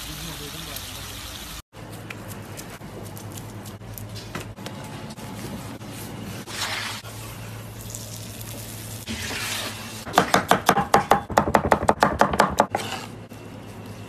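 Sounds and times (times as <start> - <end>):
knife chopping on plastic board: 10.1 - 12.8.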